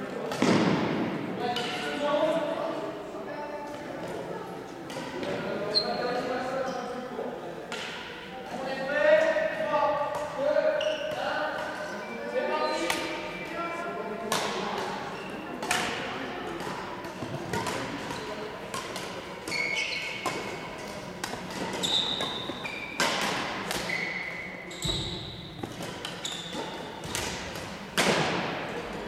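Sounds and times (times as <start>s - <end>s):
badminton rackets striking shuttlecocks: 15.6s - 24.2s, 25.5s - 28.6s.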